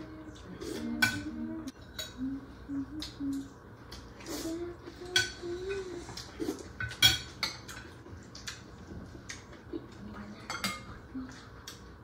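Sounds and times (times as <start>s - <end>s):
cutlery clinking on plates: 6.8s - 8.6s, 10.4s - 11.0s.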